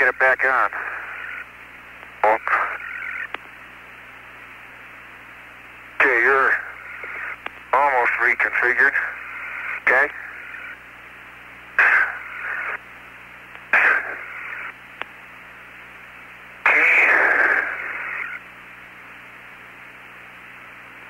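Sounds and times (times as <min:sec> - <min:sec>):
bursts of radio rushing noise: 0:00.0 - 0:01.5, 0:02.2 - 0:03.3, 0:06.0 - 0:10.8, 0:11.8 - 0:12.8, 0:13.7 - 0:14.8, 0:16.6 - 0:18.5
sharp radio click: 0:00.0 - 0:03.6, 0:06.0 - 0:10.8, 0:11.8 - 0:12.8, 0:13.5 - 0:15.2, 0:16.7 - 0:18.4
radio hiss with low hum: 0:00.0 - 0:21.0.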